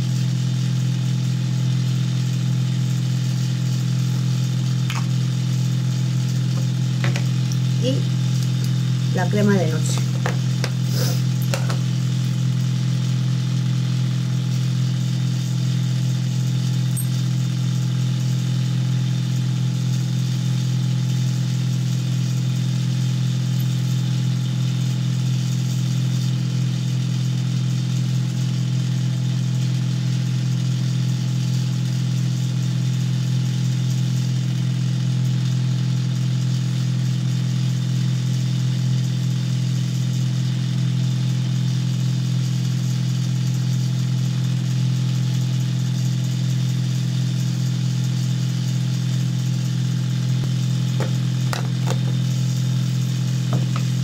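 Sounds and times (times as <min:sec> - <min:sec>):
low motor hum: 0:00.0 - 0:26.5, 0:48.4 - 0:54.0.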